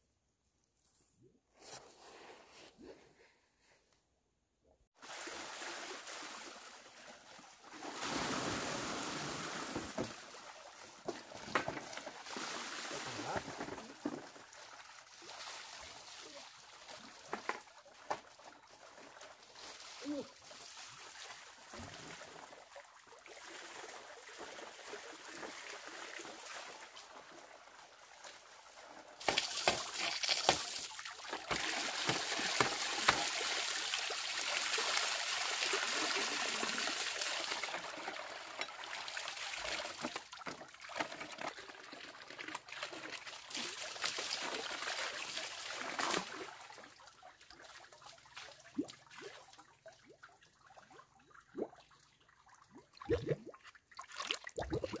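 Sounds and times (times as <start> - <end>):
hose water rushing into basin: 5.0 - 17.6, 18.4 - 46.8
water dribbling and hand splashing: 5.0 - 55.0.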